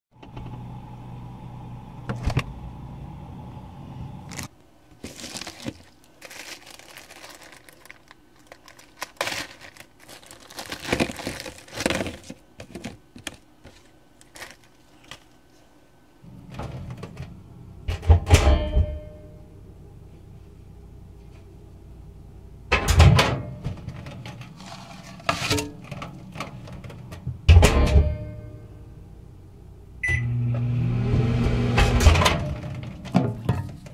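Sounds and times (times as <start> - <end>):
microwave oven hum: 0.1 - 33.9
tortilla chips crinkling and clattering: 4.3 - 15.4, 23.9 - 27.1
loud clunk: 17.9 - 19.2, 27.4 - 28.5.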